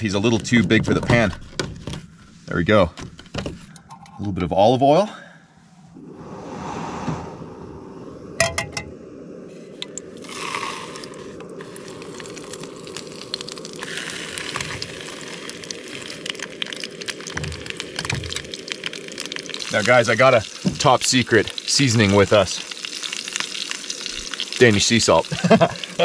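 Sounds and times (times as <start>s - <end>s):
camp stove burning: 8.2s - 26.0s
oil sizzling and crackling: 9.8s - 26.0s.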